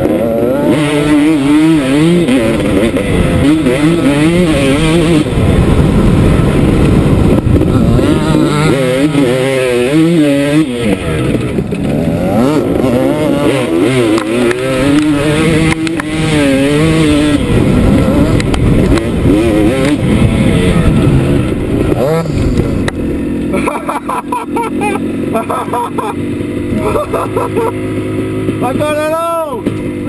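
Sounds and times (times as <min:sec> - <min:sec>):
low rumbling noise: 0:00.0 - 0:28.6
dirt bike engine revving: 0:00.0 - 0:30.0.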